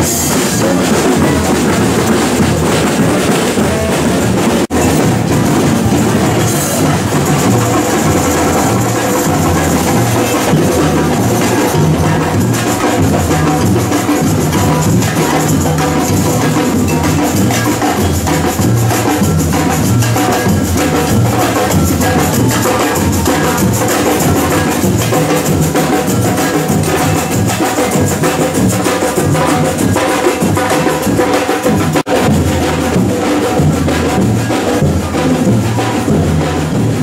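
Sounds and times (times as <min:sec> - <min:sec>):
samba percussion band drumming: 0:00.0 - 0:37.0
shakers: 0:04.8 - 0:31.8.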